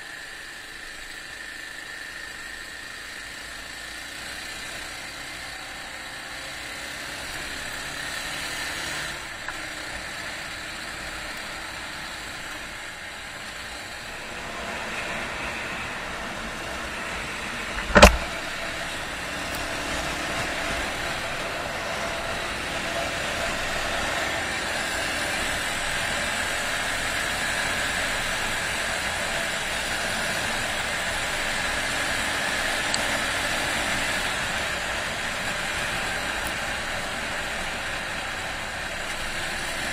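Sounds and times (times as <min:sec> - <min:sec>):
road noise: 0:00.0 - 0:39.9
motorbike engine running: 0:00.1 - 0:39.9
sharp knock: 0:17.8 - 0:18.3.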